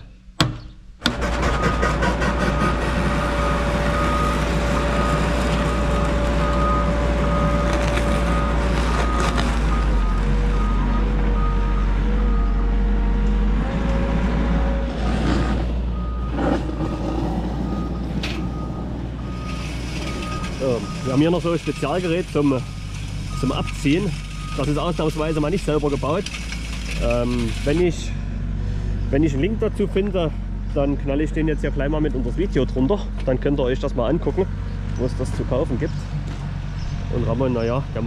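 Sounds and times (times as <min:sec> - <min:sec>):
diesel engine running: 0:01.0 - 0:38.0
reversing alarm beeping: 0:01.4 - 0:12.8, 0:16.0 - 0:25.4.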